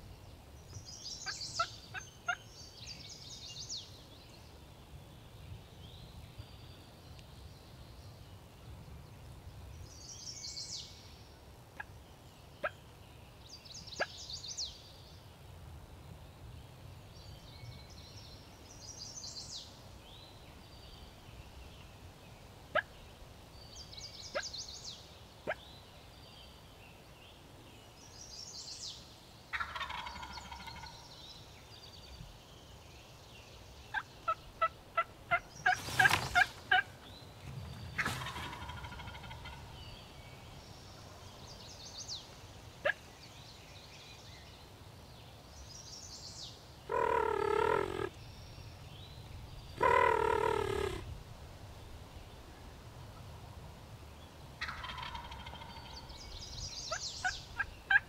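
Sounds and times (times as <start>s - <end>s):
turkey gobble: 29.5s - 30.9s, 38.0s - 39.6s, 46.9s - 48.1s, 49.8s - 51.0s, 54.6s - 55.9s, 57.6s - 58.0s
bird stuttered call: 46.9s - 48.1s, 49.8s - 51.0s
sharp bird clucks: 46.9s - 48.2s.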